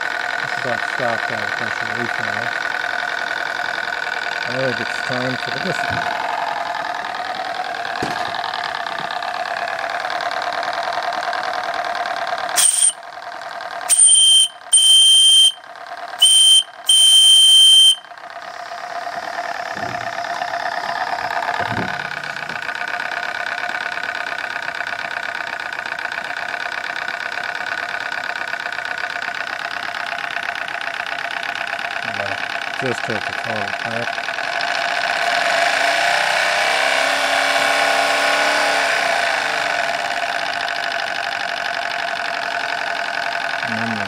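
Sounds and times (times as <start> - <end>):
steady mechanical hum: 0.0 - 44.0
steam whistle blasts: 12.6 - 13.0, 13.9 - 15.6, 16.2 - 18.0.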